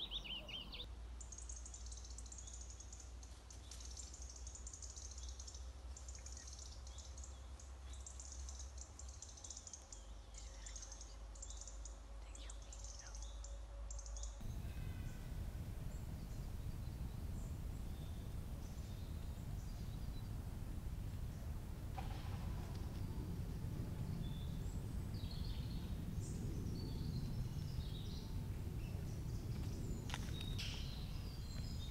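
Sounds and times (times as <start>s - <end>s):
birds chirping: 0.0s - 2.9s, 4.3s - 31.9s
faint low rumble: 9.8s - 31.9s
steady rushing noise: 14.4s - 31.9s.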